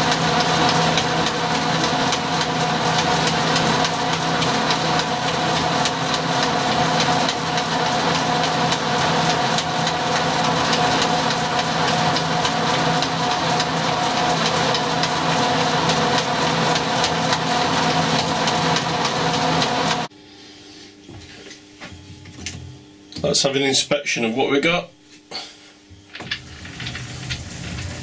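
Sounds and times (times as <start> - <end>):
lathe running: 0.0 - 20.1, 26.1 - 28.0.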